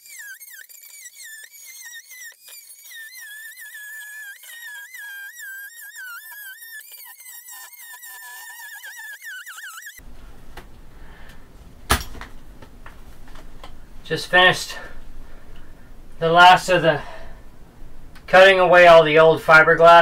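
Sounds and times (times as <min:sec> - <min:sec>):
power tool motor whining: 0:00.0 - 0:10.0.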